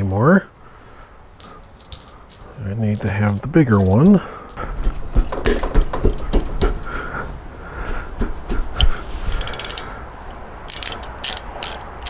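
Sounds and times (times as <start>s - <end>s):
metal tool knocks and clinks: 1.4s - 4.2s
socket ratchet clicking: 9.3s - 9.9s, 10.7s - 12.0s.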